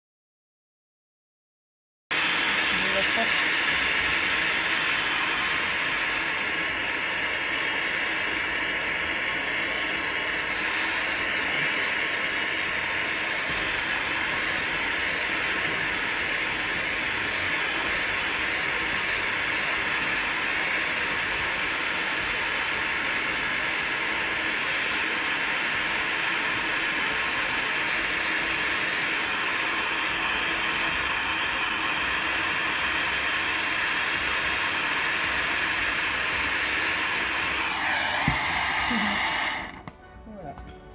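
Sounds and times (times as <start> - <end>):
hot air gun fan hissing: 2.2 - 39.9.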